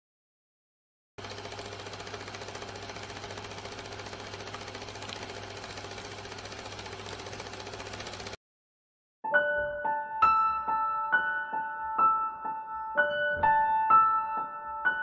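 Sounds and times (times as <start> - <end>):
film projector clatter: 1.2 - 8.4.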